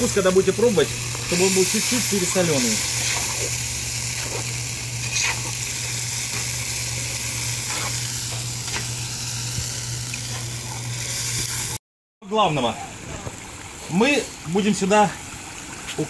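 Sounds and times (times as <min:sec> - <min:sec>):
broth boiling in a pot: 0:00.0 - 0:11.8
skimmer scraping a pot: 0:00.1 - 0:08.9.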